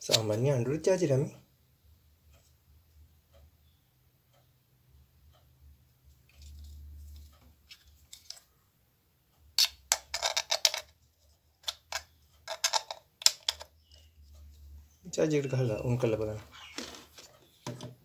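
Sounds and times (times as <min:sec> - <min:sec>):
plastic clicks and rattles: 0:09.6 - 0:11.0, 0:11.6 - 0:14.0.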